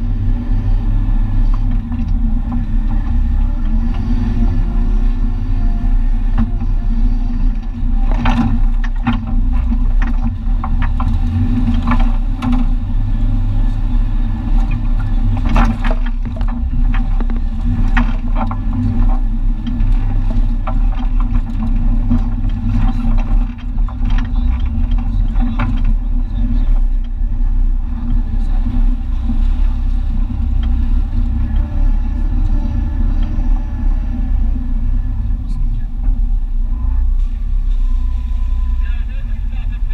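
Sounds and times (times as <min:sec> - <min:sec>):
low engine and drivetrain rumble: 0:00.0 - 0:39.9
cab knocks and rattles: 0:06.1 - 0:36.6.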